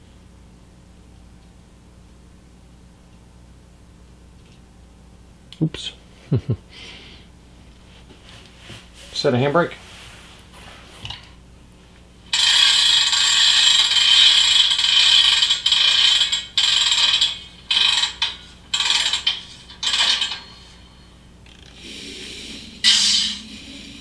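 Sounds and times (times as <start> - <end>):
locomotive engine sound: 12.3 - 24.0.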